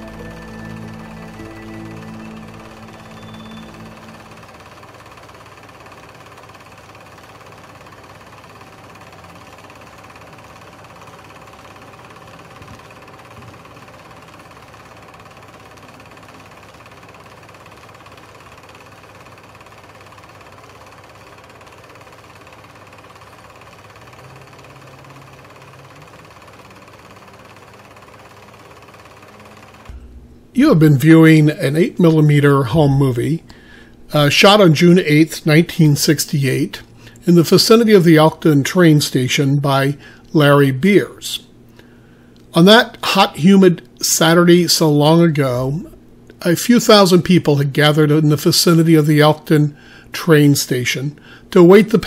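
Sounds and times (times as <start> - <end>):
film projector clattering: 0.0 - 30.0.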